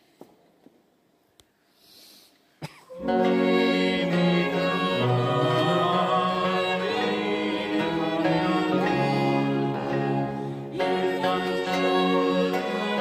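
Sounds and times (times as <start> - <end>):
choir singing: 2.9 - 13.0
baroque strings playing: 3.0 - 13.0.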